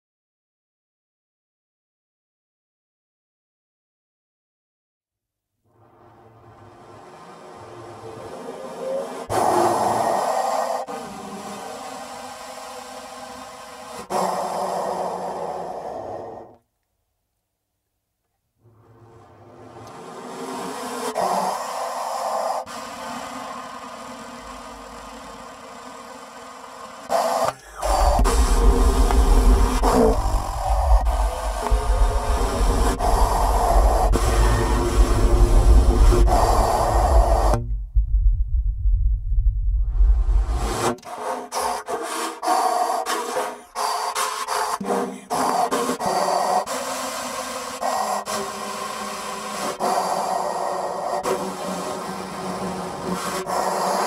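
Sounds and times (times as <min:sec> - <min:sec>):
loud burst of noise: 0:05.8 - 0:16.3, 0:18.8 - 0:41.8
rasping scraping noise music: 0:27.1 - 0:37.7
deep rumble: 0:27.7 - 0:40.9.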